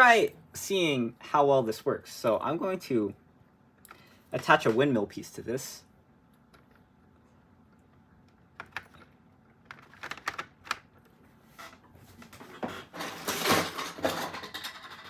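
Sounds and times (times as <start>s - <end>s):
plastic parts clicking: 8.3s - 10.9s.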